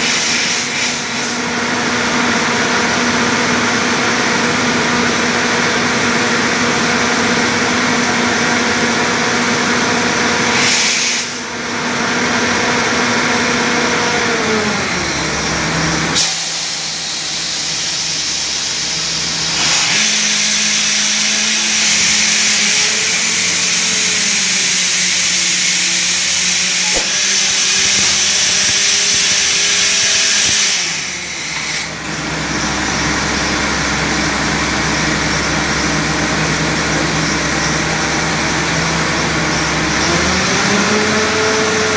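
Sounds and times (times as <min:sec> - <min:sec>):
loud compressed air hiss: 0:00.0 - 0:01.4, 0:10.4 - 0:11.5, 0:15.1 - 0:38.7
air compressor running: 0:00.0 - 0:41.9
drilling rig engine running: 0:00.0 - 0:41.9.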